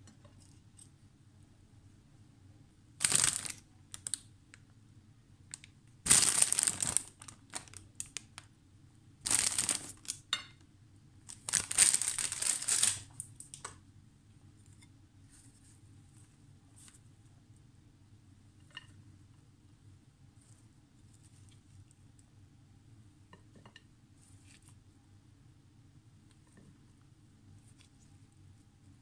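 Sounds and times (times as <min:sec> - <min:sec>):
bean sprouts rustling: 0:03.0 - 0:04.2, 0:05.6 - 0:08.4, 0:09.2 - 0:10.3, 0:11.3 - 0:13.6.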